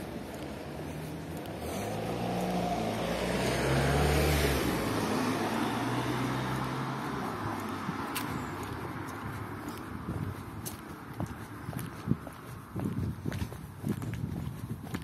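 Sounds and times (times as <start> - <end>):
car driving past: 0.3 - 8.3.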